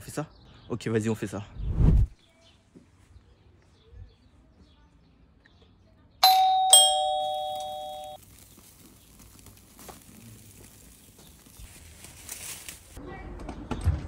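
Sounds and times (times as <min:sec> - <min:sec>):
doorbell ding-dong chime: 0:06.2 - 0:08.2.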